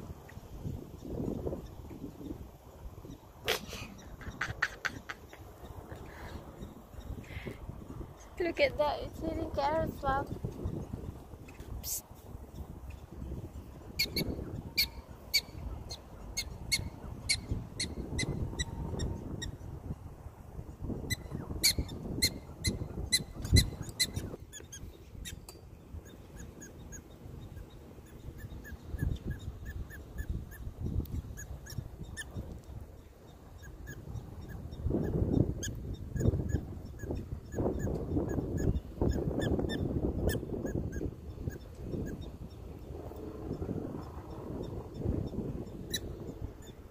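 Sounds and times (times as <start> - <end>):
prairie dogs barking: 13.9 - 18.7, 21.1 - 25.4, 26.0 - 42.4.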